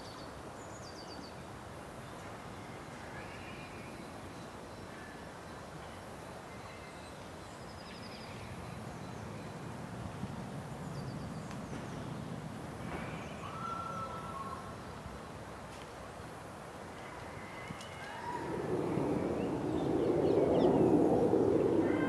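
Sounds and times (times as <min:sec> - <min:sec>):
low background rumble: 0:18.2 - 0:22.0.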